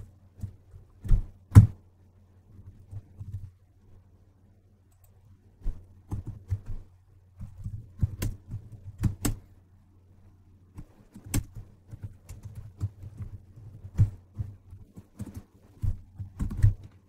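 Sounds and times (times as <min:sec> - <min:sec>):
computer keyboard typing: 0:07.6 - 0:09.4, 0:11.1 - 0:14.1, 0:16.2 - 0:17.0.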